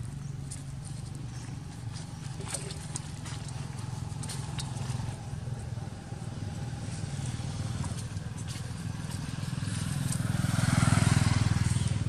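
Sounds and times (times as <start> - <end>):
vehicle engine low pulsing: 0.0 - 12.0.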